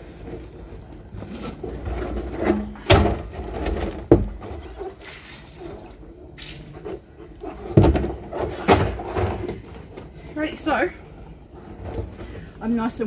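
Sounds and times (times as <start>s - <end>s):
plastic drum rolling: 0.0s - 13.0s
knocks on plastic drum: 4.0s - 4.4s
water sloshing and running out: 4.6s - 6.8s.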